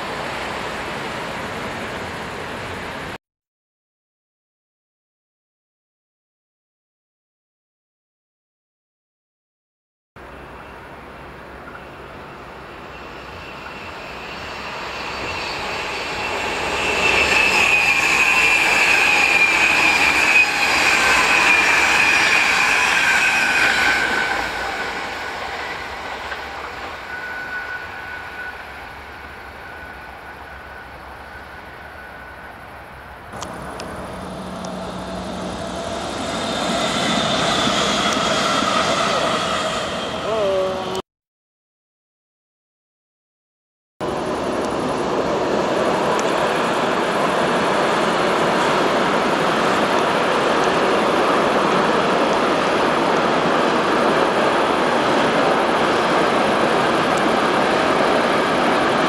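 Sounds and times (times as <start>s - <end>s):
train passing: 0.0s - 3.2s, 10.2s - 41.0s, 44.0s - 59.0s
high falling squeal: 10.3s - 41.0s
rush of train wheels: 10.3s - 41.0s, 44.0s - 59.0s.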